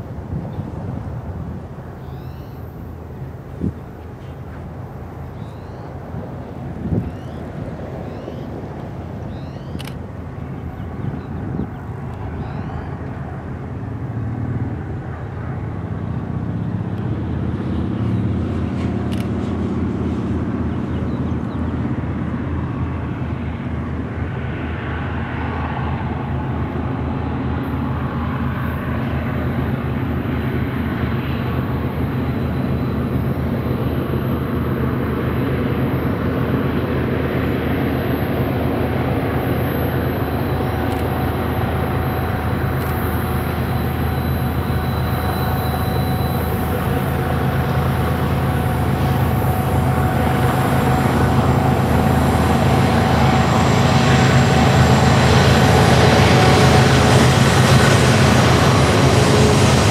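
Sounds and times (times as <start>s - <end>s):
diesel locomotive engines droning: 0.0s - 59.9s.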